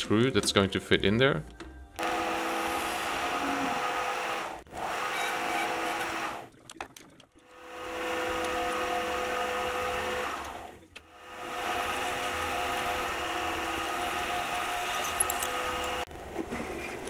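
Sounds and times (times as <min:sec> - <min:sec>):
metal lathe whining: 0:02.0 - 0:06.5, 0:07.5 - 0:16.1.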